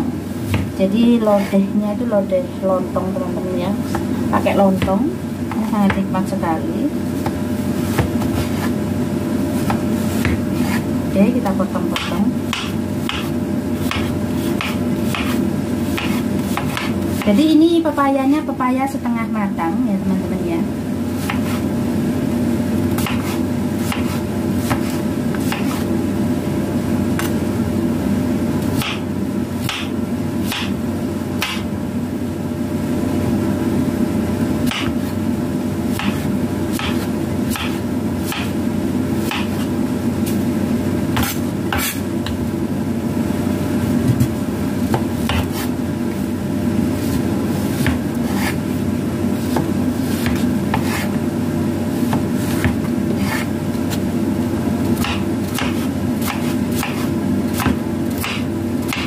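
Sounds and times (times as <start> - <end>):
knife chopping on wooden board: 0.5 - 0.8, 7.2 - 8.8, 9.6 - 10.9, 11.9 - 17.3, 21.2 - 21.6, 23.0 - 25.8, 28.8 - 30.8, 31.4 - 31.7, 34.6 - 35.1, 35.9 - 38.6, 39.2 - 39.7, 41.2 - 42.4, 44.1 - 45.7, 47.1 - 48.6, 49.4 - 51.2, 52.1 - 53.5, 55.0 - 59.0.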